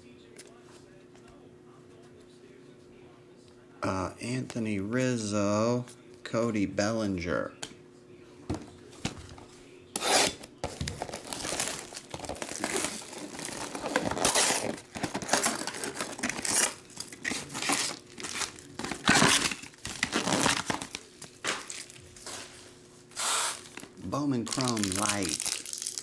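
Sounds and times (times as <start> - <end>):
cardboard tearing: 10.0 - 22.0, 23.2 - 26.0
foil packs tapping: 10.6 - 22.5, 23.5 - 26.0
plastic wrap crinkling: 10.6 - 22.6, 23.2 - 26.0.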